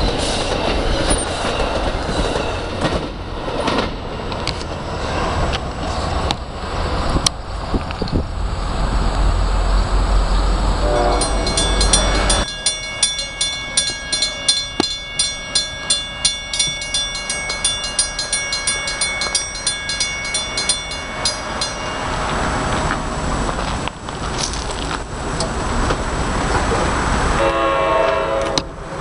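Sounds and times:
rushing noise: 0.0s - 27.6s
heavy low rumble: 2.0s - 27.4s
crossing warning bell ringing: 10.8s - 23.9s.

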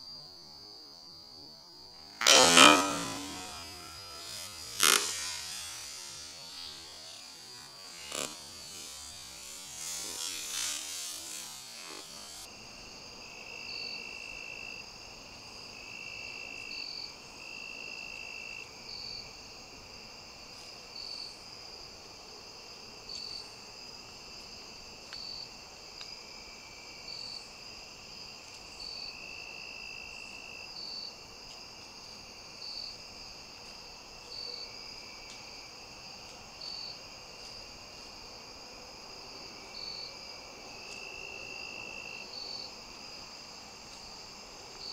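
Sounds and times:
high-pitched insect trill: 0.0s - 44.9s
low insect buzzing: 1.1s - 15.2s
short cricket chirp: 34.1s - 44.9s.

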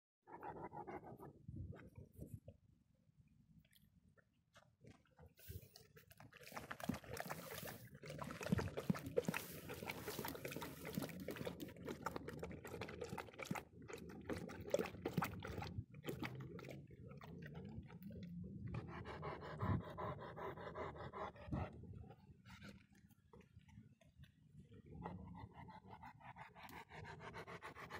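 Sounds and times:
dog lapping water: 5.4s - 23.8s, 24.6s - 27.9s.

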